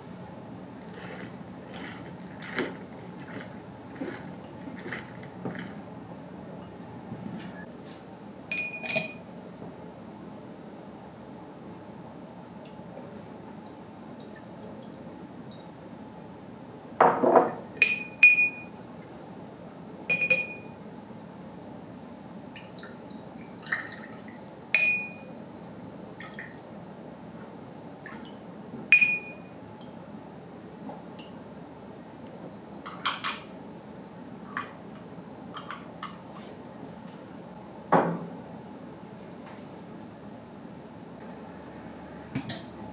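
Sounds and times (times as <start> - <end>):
metal cup clinking on glass: 8.5 - 9.2, 20.1 - 20.7, 24.8 - 25.2.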